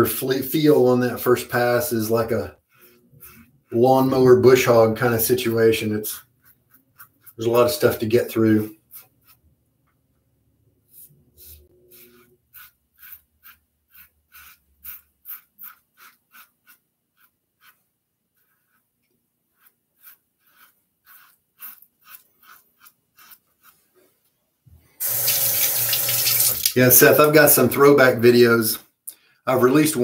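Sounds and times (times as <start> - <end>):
safety razor scraping stubble: 11.4 - 17.8, 19.6 - 23.8.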